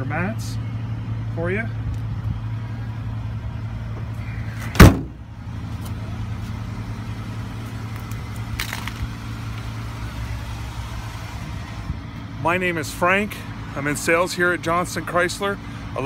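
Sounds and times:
car door slamming: 4.6s - 5.2s.

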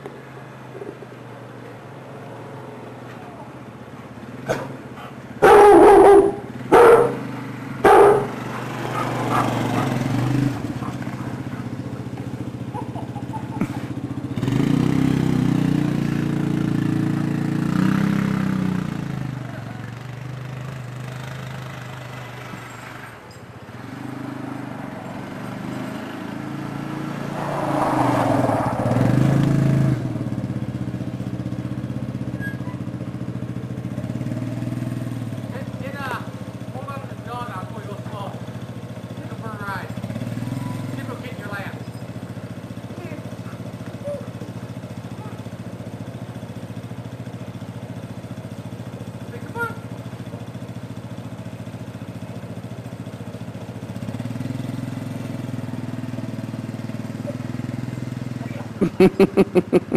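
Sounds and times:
engine running: 0.0s - 59.9s
dog barking: 4.4s - 13.8s, 45.2s - 45.4s.

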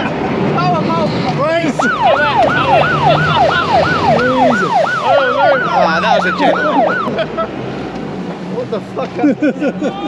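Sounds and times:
yelping siren: 1.7s - 7.2s.

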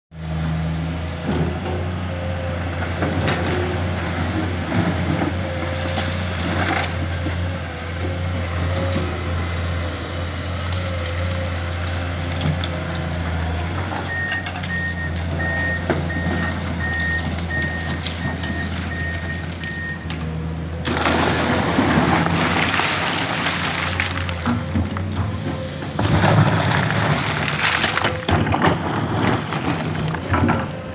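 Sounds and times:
excavator diesel engine running: 0.2s - 30.9s.

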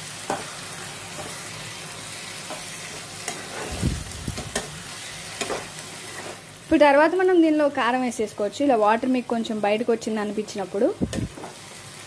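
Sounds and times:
vegetables sizzling in a pan: 0.0s - 12.0s
spatula scraping a pan: 0.3s - 3.8s, 4.5s - 6.4s.

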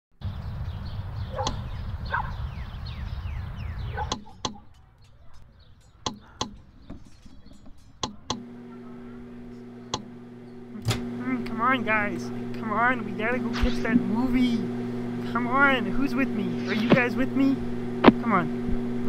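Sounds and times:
birds chirping: 0.2s - 19.0s
refrigerator humming: 0.9s - 19.0s
sharp knocks: 4.1s - 8.5s.

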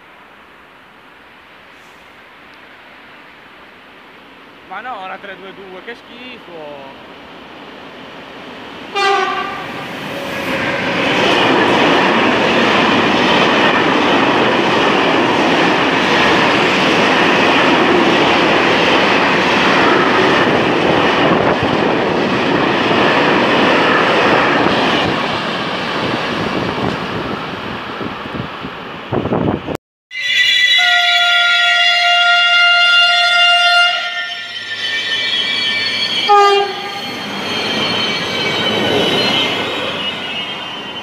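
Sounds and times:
freight train passing: 0.0s - 41.0s
train horn blast: 8.9s - 10.4s, 30.1s - 34.6s, 36.3s - 37.0s.

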